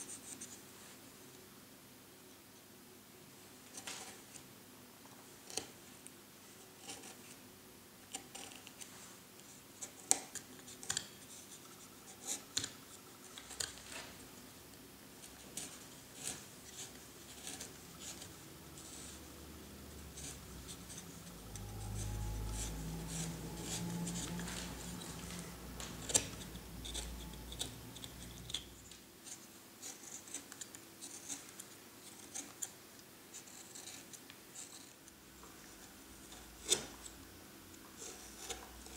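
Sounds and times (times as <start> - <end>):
low hum: 17.8 - 29.0.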